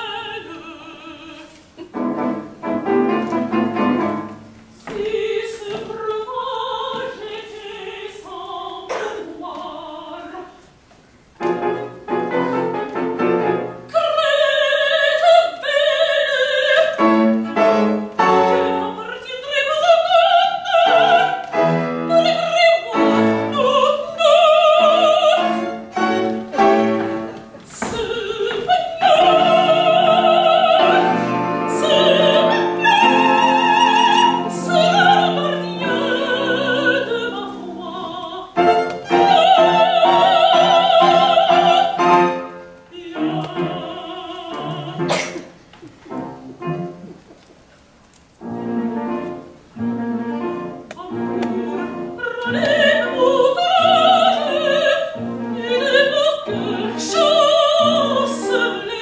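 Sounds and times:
soprano singing opera: 0.0s - 2.2s, 4.9s - 10.7s, 11.4s - 45.3s, 48.5s - 59.0s
piano: 0.0s - 59.0s
strings: 20.8s - 47.5s.

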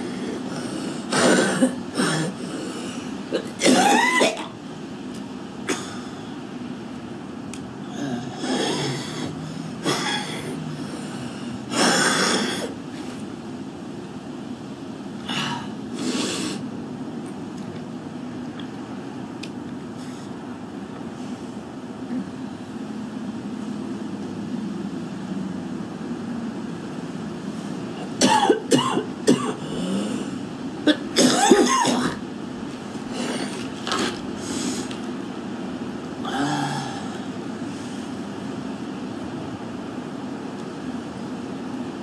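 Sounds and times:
woman coughing: 1.1s - 2.4s, 3.4s - 4.5s, 28.2s - 29.7s, 30.9s - 32.2s
woman clearing throat: 3.3s - 4.5s, 28.2s - 30.0s, 30.9s - 32.2s.

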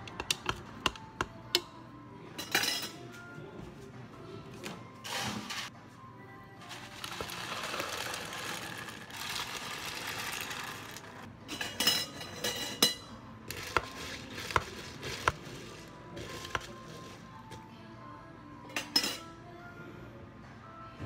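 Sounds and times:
ice clattering into cup: 6.7s - 11.2s.

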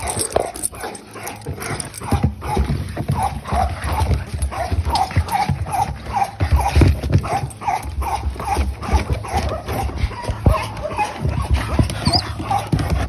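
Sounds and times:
paws thumping on wooden deck: 0.0s - 13.0s
puppy whimpering yelps: 11.8s - 12.5s.

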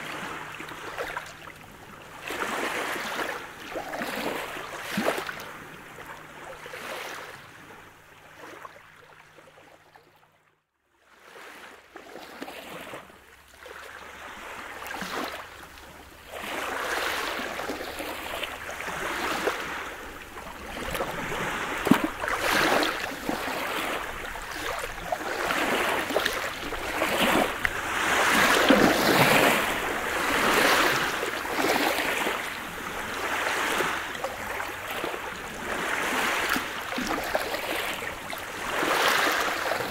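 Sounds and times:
waves washing over pebbles: 2.1s - 5.6s, 13.7s - 39.9s.

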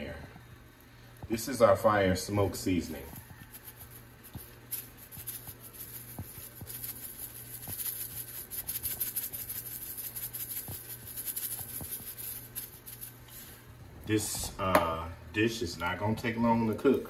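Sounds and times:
spice shaker hissing patter: 2.3s - 13.6s.

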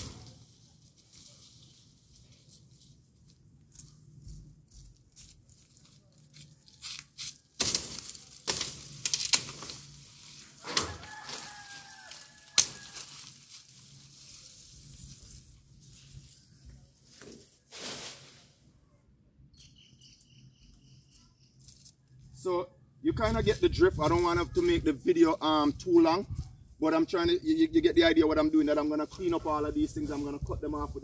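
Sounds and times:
tree branches rustling: 0.0s - 18.7s
machete hacking branches: 7.2s - 13.4s.

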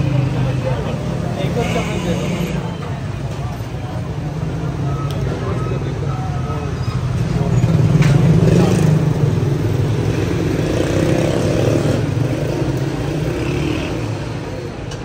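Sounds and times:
street traffic: 0.0s - 15.0s.

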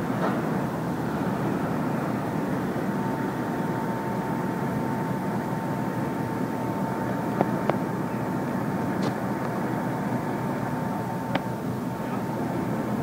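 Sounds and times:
crane engine running: 0.0s - 13.0s
high whine: 0.0s - 13.0s.

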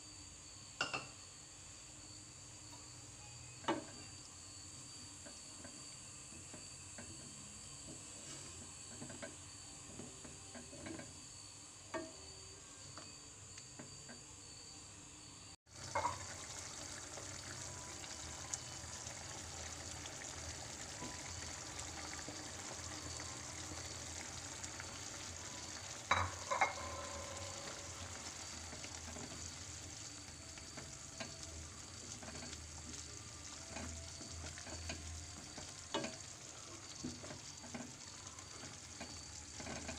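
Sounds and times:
curry simmering and sizzling: 15.7s - 39.9s
spatula knocking on pan: 26.1s - 27.7s.

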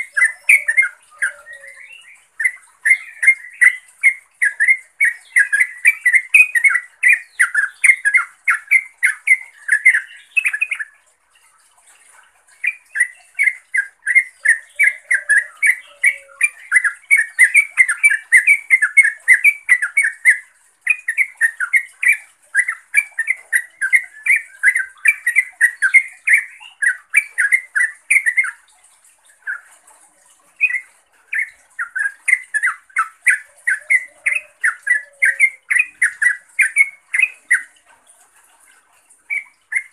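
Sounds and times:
bird chattering calls: 0.0s - 10.9s, 30.6s - 37.8s.

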